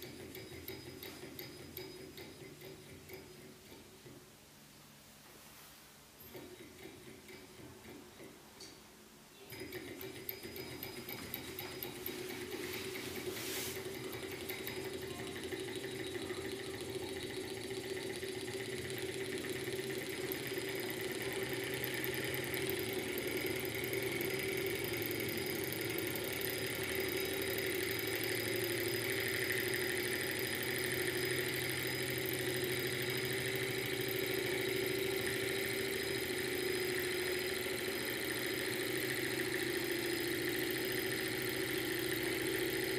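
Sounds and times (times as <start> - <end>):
stirling engine running: 10.4 - 42.9.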